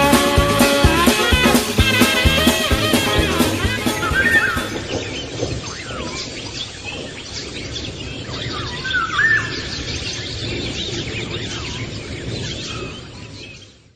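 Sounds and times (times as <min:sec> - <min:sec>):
outdoor hiss: 0:00.0 - 0:10.7
birds chirping and singing: 0:01.5 - 0:13.8
whistled bird call: 0:02.0 - 0:09.8.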